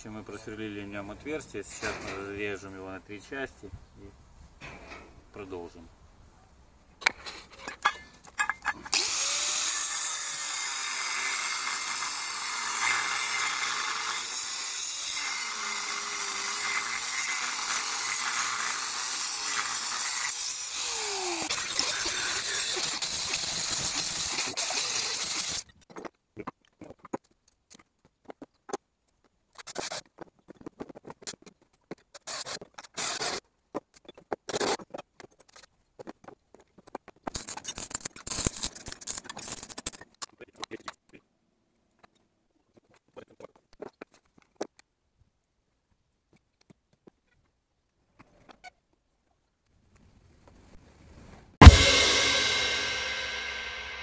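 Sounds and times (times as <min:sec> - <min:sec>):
angle grinder cutting metal: 0:08.9 - 0:25.6, 0:51.6 - 0:54.0.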